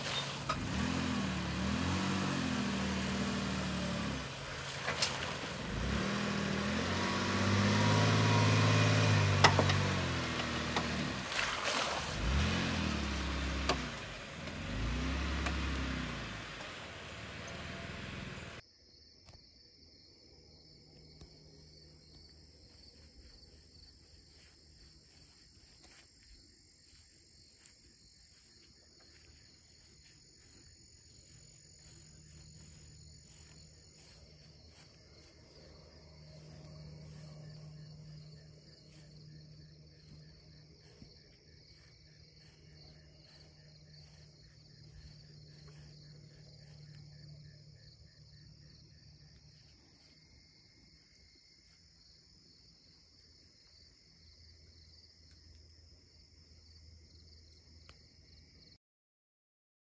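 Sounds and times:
crickets trilling: 18.0s - 58.8s.

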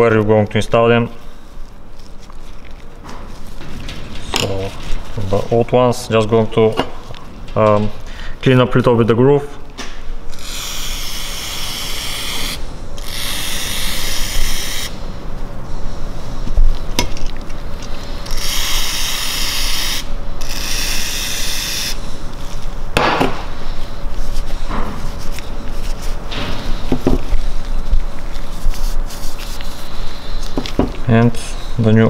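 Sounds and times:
rubbing noise: 23.7s - 30.7s.

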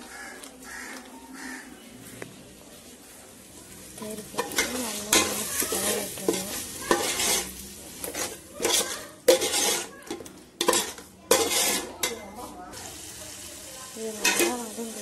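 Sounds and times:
metal spoon scraping a pot: 4.2s - 12.5s, 14.2s - 14.6s
spoon clanking against pot: 4.4s - 12.4s, 14.2s - 14.6s.

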